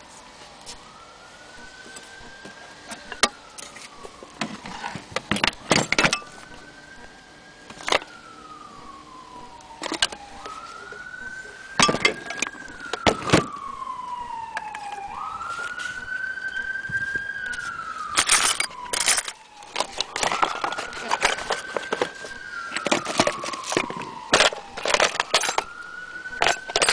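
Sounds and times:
siren wailing: 0:00.0 - 0:26.9
metal parts clicking and knocking: 0:05.2 - 0:06.3, 0:18.1 - 0:22.1, 0:22.7 - 0:25.7, 0:26.4 - 0:26.9.

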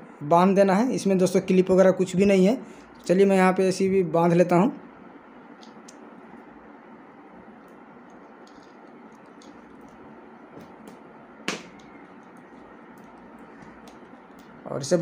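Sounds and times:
steady low hiss: 0:00.0 - 0:15.0
wire being twisted by hand: 0:05.5 - 0:06.7, 0:07.4 - 0:15.0.

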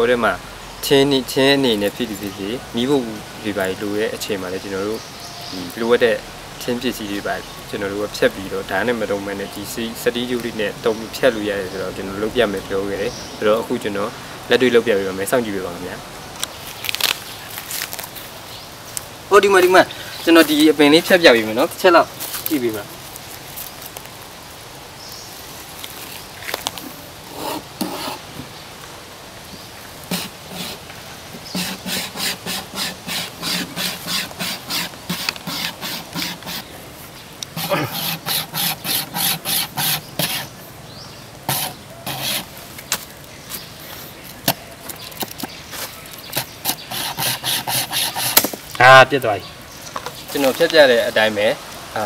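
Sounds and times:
outdoor background hiss: 0:00.0 - 0:52.0
wire saw rasping on wood: 0:27.3 - 0:28.2, 0:30.1 - 0:36.6, 0:37.6 - 0:40.5, 0:41.5 - 0:42.6, 0:46.4 - 0:48.5.

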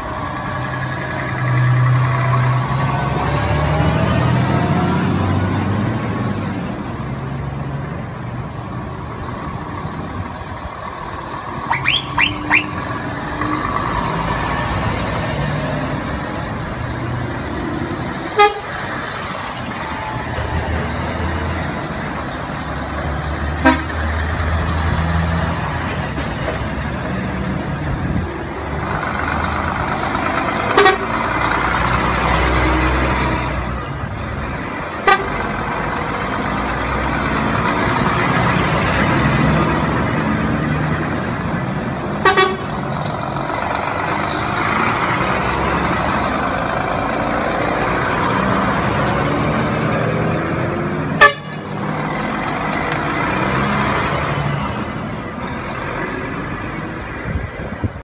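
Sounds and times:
diesel trucks driving past: 0:00.0 - 0:58.0
truck horn toots: 0:11.7 - 0:12.8, 0:18.3 - 0:18.8, 0:23.6 - 0:24.1, 0:30.6 - 0:31.4, 0:35.0 - 0:35.6, 0:42.2 - 0:42.8, 0:51.2 - 0:51.7.

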